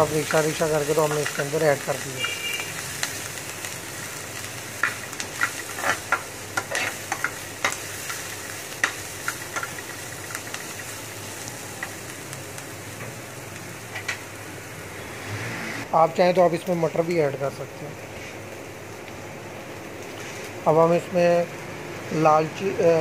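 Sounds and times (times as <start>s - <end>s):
frying sizzle: 0.0s - 23.0s
spatula scraping frying pan: 4.8s - 7.8s.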